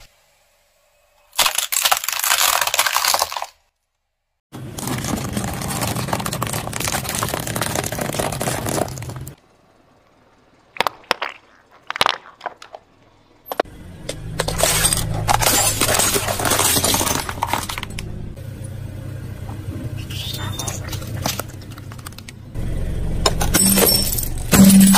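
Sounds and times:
tyre crushing straws and sweets: 1.3s - 3.8s, 4.6s - 9.4s, 14.4s - 18.0s
car engine running low: 13.1s - 24.9s.

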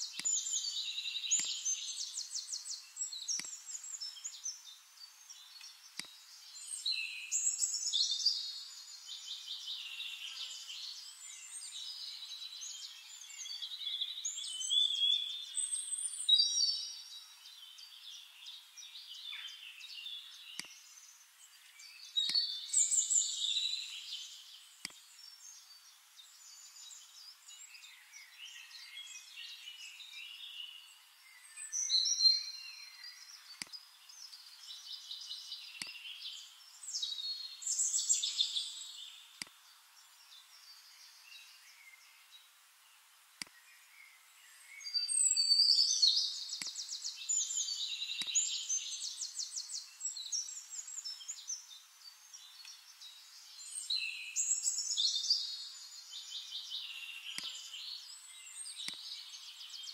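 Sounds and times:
faint sharp clicks: 0.0s - 0.6s, 1.3s - 1.7s, 3.1s - 3.8s, 5.5s - 6.2s, 20.5s - 20.9s, 22.2s - 22.6s, 24.8s - 25.0s, 33.4s - 33.8s, 35.8s - 36.0s, 39.4s - 39.6s, 43.4s - 43.6s, 46.5s - 46.9s, 48.2s - 48.5s, 52.6s - 52.8s, 57.3s - 57.7s, 58.7s - 59.2s
birds singing: 0.0s - 59.9s.

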